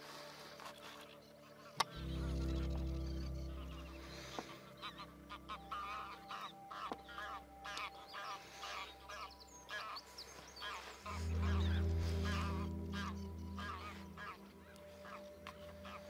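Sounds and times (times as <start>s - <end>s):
waterfowl calling: 0.7s - 16.0s
loud low steady hum: 11.2s - 15.1s.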